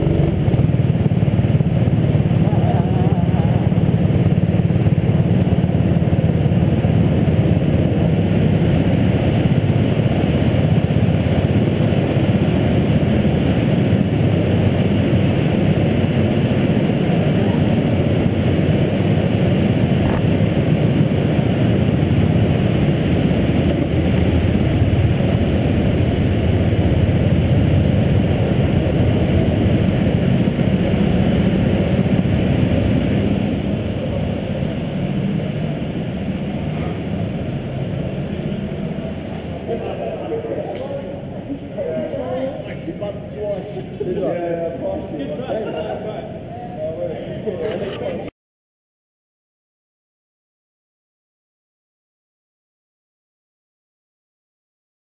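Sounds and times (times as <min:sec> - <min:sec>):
go-kart engines droning: 0:00.0 - 0:48.3.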